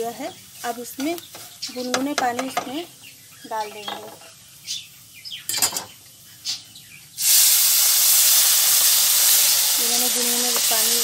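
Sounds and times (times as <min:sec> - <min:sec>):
water sizzling in hot pan: 0:00.0 - 0:02.9, 0:07.1 - 0:11.0.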